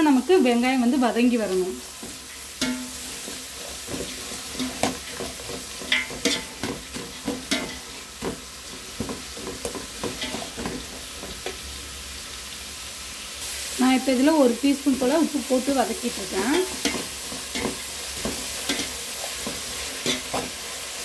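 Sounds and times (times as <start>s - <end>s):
onions sizzling in oil: 0.0s - 21.0s
metal spatula scraping pot: 1.8s - 11.2s, 16.2s - 20.6s.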